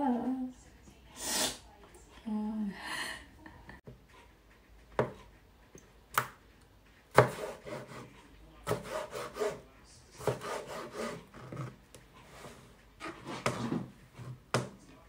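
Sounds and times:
knife slicing on chopping board: 7.1s - 8.1s, 8.7s - 9.6s, 10.2s - 11.3s.

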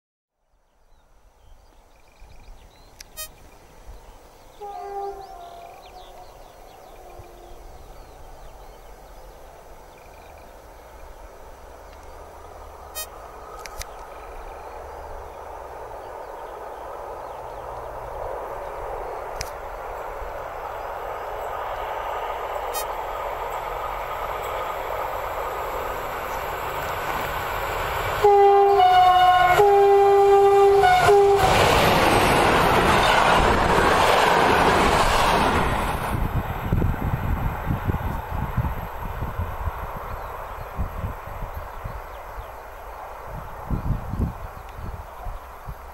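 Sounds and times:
locomotive engine and wheel noise: 2.1s - 45.9s
train horn: 3.1s - 3.5s, 4.5s - 7.7s, 12.9s - 13.2s, 28.2s - 31.7s.

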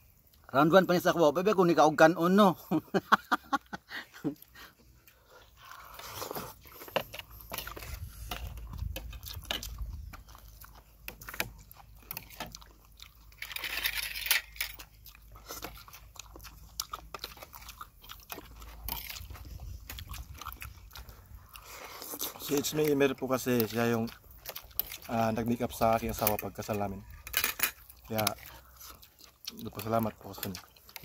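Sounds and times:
chewing and crunching food: 0.0s - 31.0s.

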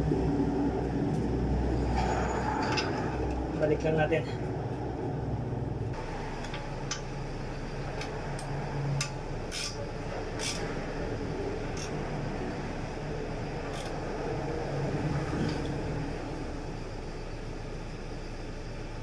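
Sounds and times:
steady low hum: 0.0s - 19.0s
hand tool clicks and metallic scrapes: 8.0s - 9.8s, 10.4s - 10.7s, 11.7s - 12.0s, 13.7s - 14.0s.

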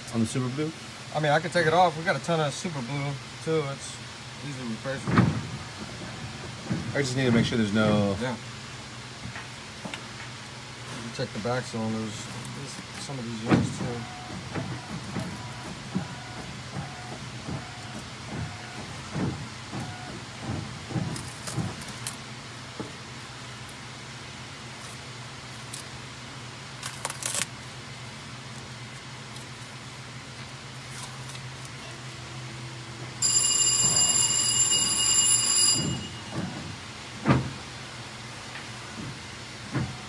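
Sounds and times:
high-pitched ringing tone: 33.2s - 36.6s.

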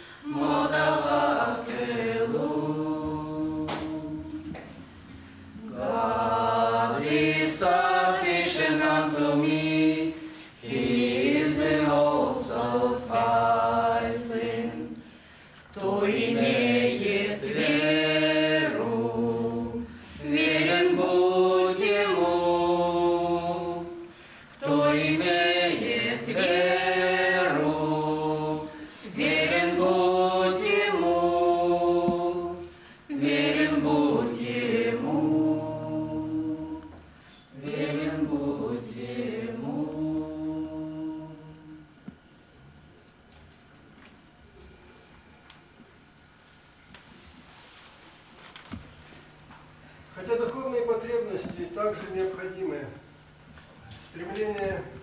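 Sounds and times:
group singing a cappella: 0.0s - 42.3s
singers breathing: 10.2s - 10.6s, 15.0s - 15.7s, 24.0s - 24.6s, 28.7s - 29.1s, 32.6s - 33.1s.

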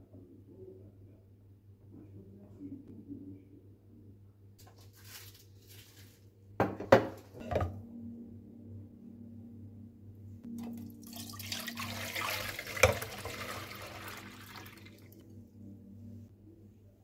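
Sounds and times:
milk pouring into a pot: 10.6s - 15.2s.

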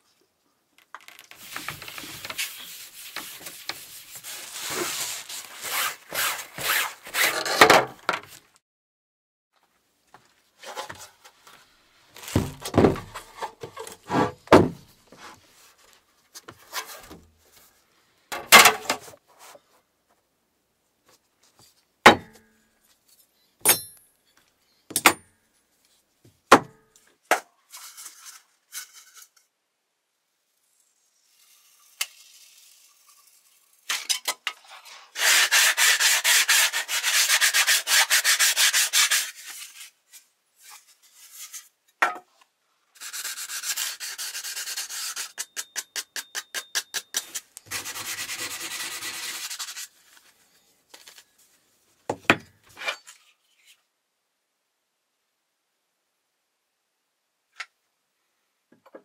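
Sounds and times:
hand sanding: 35.2s - 39.6s, 47.7s - 49.9s.

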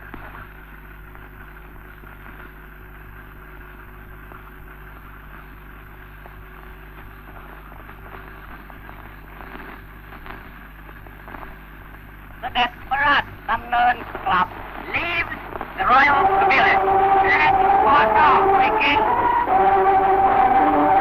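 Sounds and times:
crackles and clicks: 0.0s - 21.0s
film soundtrack hiss: 0.0s - 21.0s
low hum: 12.5s - 21.0s.

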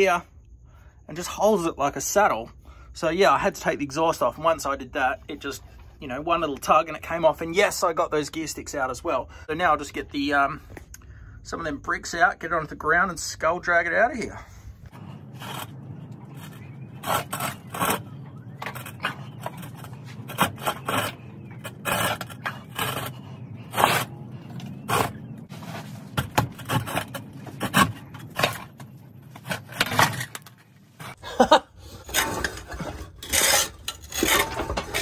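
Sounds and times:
bricks scraping and knocking: 14.9s - 31.2s, 31.8s - 35.0s.

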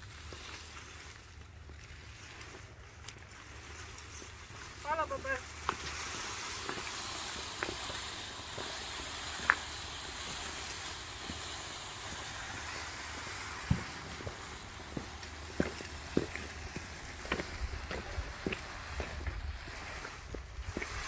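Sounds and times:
sharp snaps and cracks: 0.0s - 4.8s, 5.4s - 21.0s
dry vines rustling and crackling: 0.0s - 21.0s
steady hiss: 0.0s - 21.0s.

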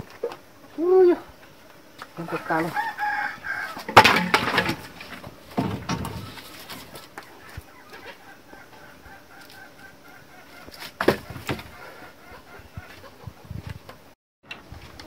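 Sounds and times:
chickens clucking: 2.0s - 14.0s
thump: 5.5s - 6.3s.

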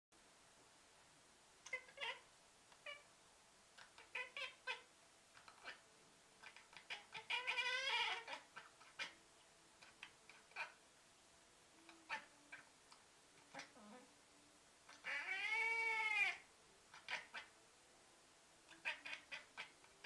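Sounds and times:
cat chattering: 1.6s - 3.1s, 3.8s - 5.8s, 6.4s - 9.2s, 9.8s - 10.8s, 11.9s - 12.7s, 13.4s - 14.1s, 14.9s - 17.5s, 18.7s - 20.0s.

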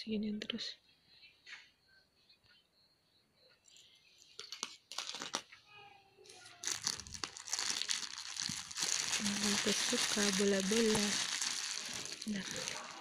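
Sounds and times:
plastic mailer bag crinkling: 4.4s - 5.4s, 6.5s - 13.0s.

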